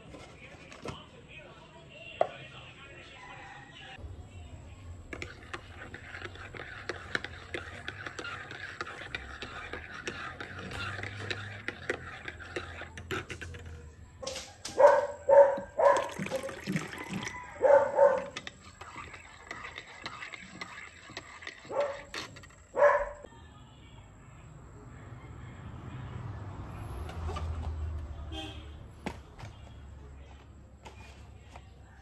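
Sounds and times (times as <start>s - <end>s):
metal spoon stirring in ceramic mug: 5.0s - 14.0s, 15.1s - 23.3s
dog barking: 14.2s - 16.6s, 17.6s - 18.4s, 21.7s - 22.0s, 22.8s - 23.3s.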